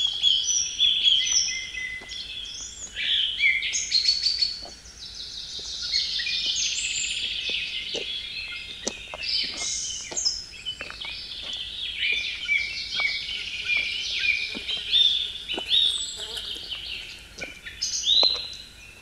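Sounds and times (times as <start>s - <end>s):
songbirds chirping and trilling: 0.0s - 19.0s
faint footsteps: 1.9s - 3.0s, 5.5s - 19.0s.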